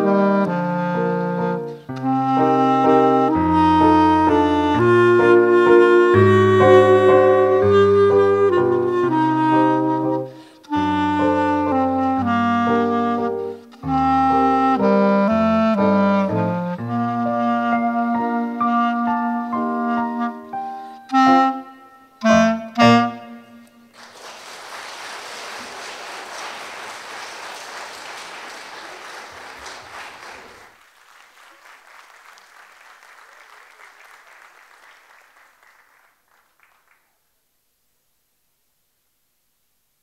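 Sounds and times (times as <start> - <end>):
clarinet and piano playing: 0.0 - 23.9
audience applause: 23.9 - 37.2.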